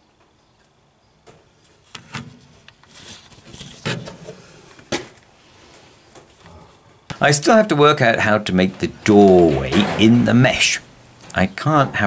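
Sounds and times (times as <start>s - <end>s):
rustling: 1.5s - 7.0s.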